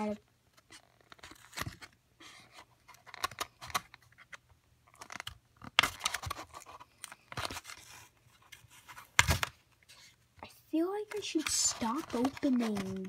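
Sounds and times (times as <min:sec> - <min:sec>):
plastic packaging crinkling: 0:11.1 - 0:13.0.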